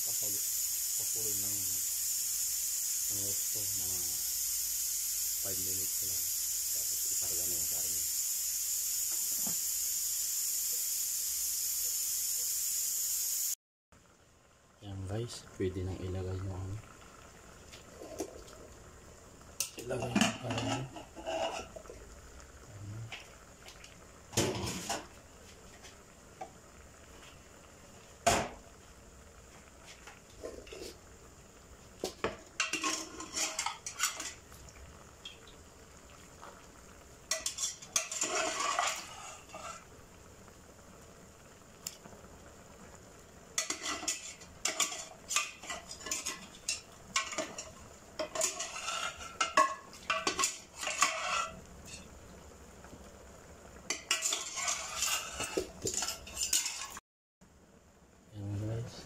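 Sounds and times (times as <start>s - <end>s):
metal pot clattering: 19.6s - 21.9s, 32.1s - 34.4s, 37.3s - 39.8s, 43.6s - 52.0s, 53.9s - 57.0s.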